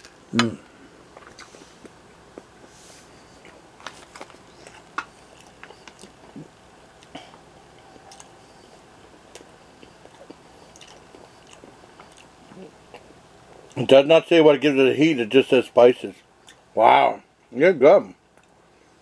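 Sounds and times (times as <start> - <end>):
person chewing: 1.1 - 13.8.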